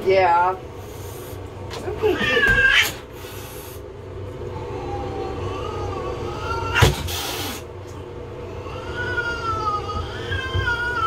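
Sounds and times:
cat yowling: 0:02.1 - 0:03.0, 0:04.7 - 0:07.6, 0:08.6 - 0:11.0.

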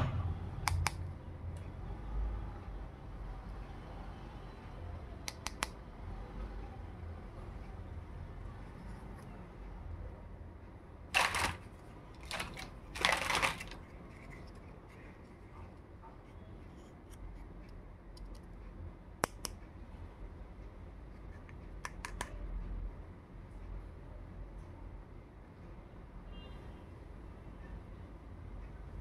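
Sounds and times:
plastic toys scraping rustles: 0:11.2 - 0:11.6, 0:12.2 - 0:14.6.

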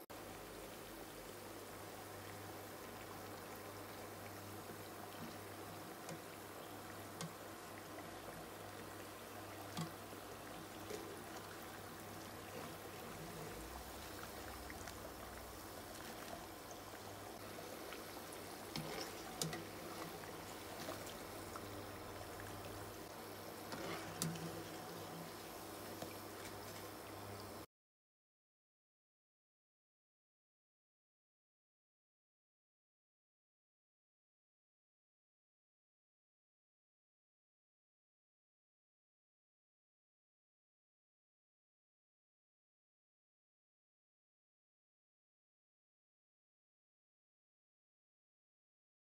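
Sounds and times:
oil sizzling and bubbling: 0:00.0 - 0:27.7.

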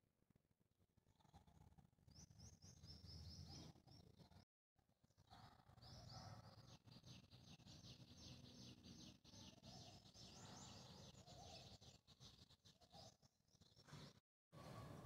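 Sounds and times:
songbird chirping: 0:02.2 - 0:04.4.

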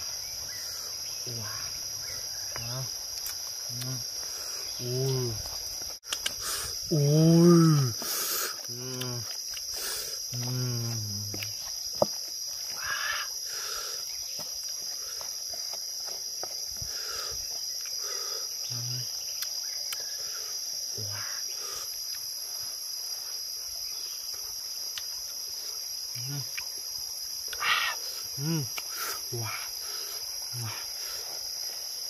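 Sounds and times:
insects droning: 0:00.0 - 0:32.0.

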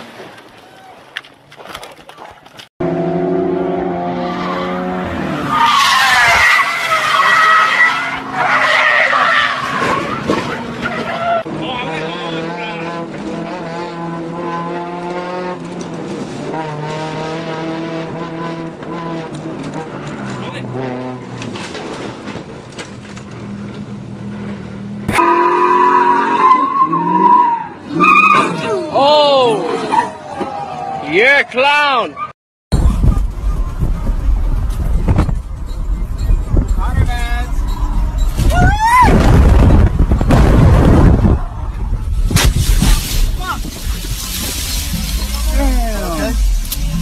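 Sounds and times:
high tyre squeal: 0:04.2 - 0:11.5, 0:25.1 - 0:28.6, 0:35.6 - 0:39.2
tyres squealing: 0:05.4 - 0:11.5.

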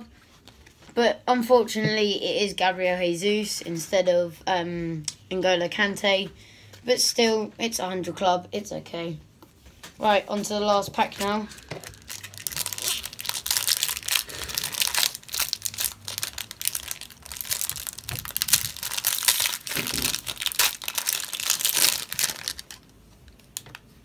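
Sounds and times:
foil wrapper tearing and crinkling: 0:11.1 - 0:23.8.

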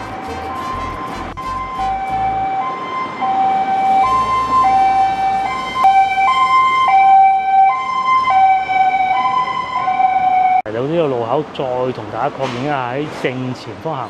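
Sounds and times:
two-tone emergency siren: 0:00.0 - 0:10.6
traffic rumbling: 0:00.0 - 0:14.0.

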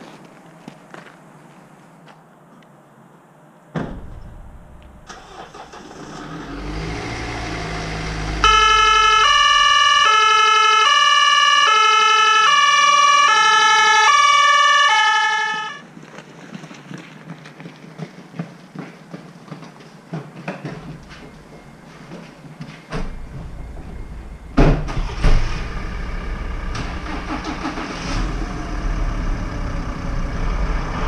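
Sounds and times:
ambulance engine running: 0:04.7 - 0:15.8, 0:23.0 - 0:31.0
two-tone siren: 0:08.2 - 0:15.8.

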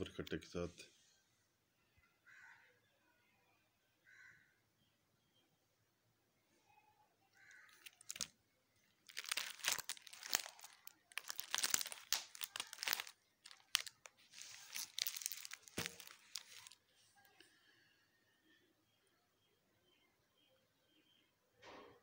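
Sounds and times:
plastic sleeves crinkling: 0:07.5 - 0:16.8.

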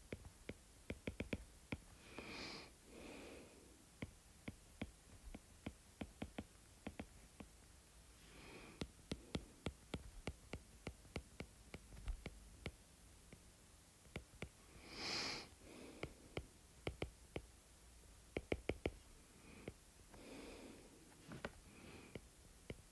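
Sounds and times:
stylus tapping on glass screen: 0:00.1 - 0:01.9, 0:04.0 - 0:07.5, 0:16.0 - 0:17.5, 0:18.3 - 0:19.0.

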